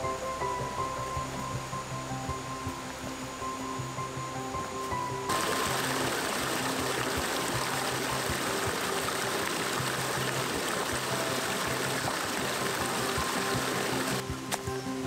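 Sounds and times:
background music sustained notes: 0.0 - 15.0
stream rushing over boulders: 4.6 - 15.0.

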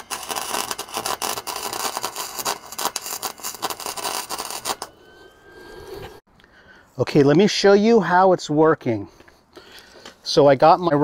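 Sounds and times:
welder arc crackling and sizzling: 0.0 - 4.9.

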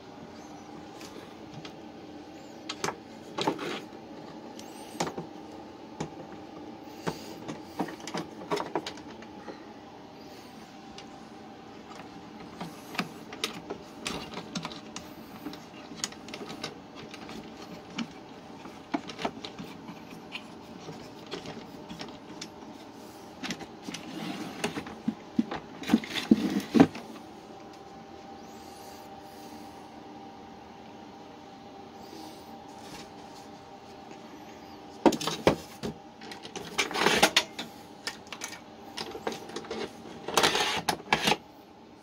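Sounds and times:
faint steady hum: 0.0 - 42.0
wood and metal clicks and rattles: 11.9 - 22.6.

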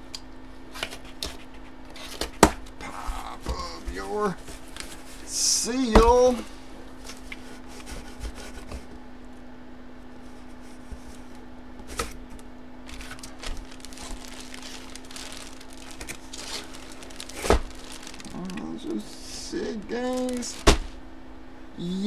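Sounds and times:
steady low hum: 0.0 - 22.0
plastic bag rustling: 12.8 - 21.0.

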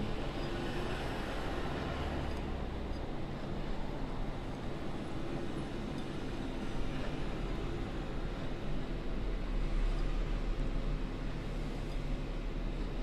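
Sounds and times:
steady background hum and hiss: 0.0 - 13.0.

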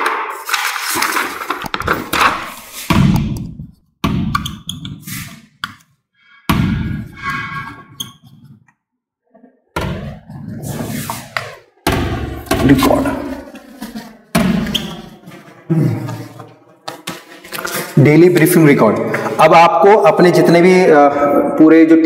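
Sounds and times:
papers rustling: 0.0 - 2.9, 15.1 - 18.1
marker squeaking on whiteboard: 4.3 - 6.0, 7.1 - 8.8, 14.6 - 15.6.

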